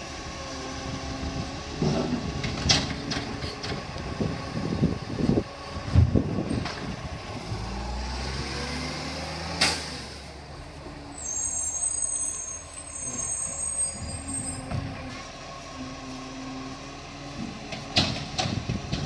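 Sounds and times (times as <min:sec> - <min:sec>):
truck diesel engine pulling away: 0:00.0 - 0:19.0.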